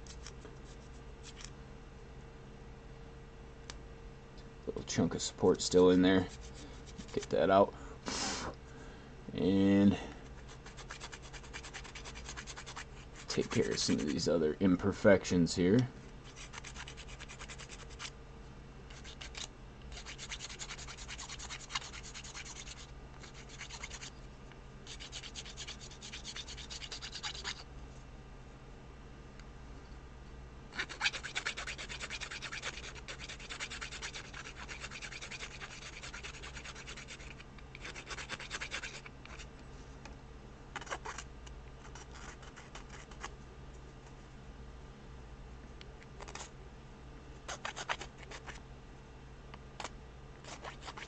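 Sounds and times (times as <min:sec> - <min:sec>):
hand file rasping: 0:10.4 - 0:14.1, 0:18.9 - 0:24.1, 0:24.9 - 0:27.6, 0:30.8 - 0:39.4.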